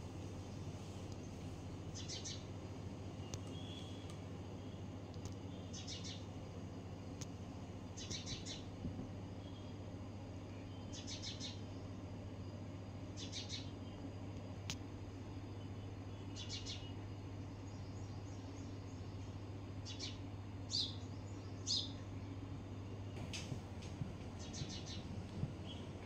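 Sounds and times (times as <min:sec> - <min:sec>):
steady low hum: 0:00.0 - 0:26.0
small bird chirping: 0:00.4 - 0:06.4, 0:07.2 - 0:08.7, 0:10.5 - 0:12.0, 0:13.1 - 0:14.0, 0:15.5 - 0:22.2, 0:24.3 - 0:26.0.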